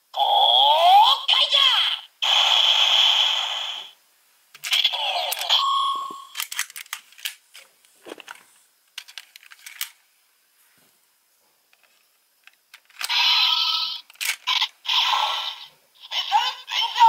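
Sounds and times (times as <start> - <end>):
toy steady beep: 5.3 - 6.4
plastic clicks and rattles: 6.3 - 10.0, 11.8 - 13.1, 14.0 - 14.5.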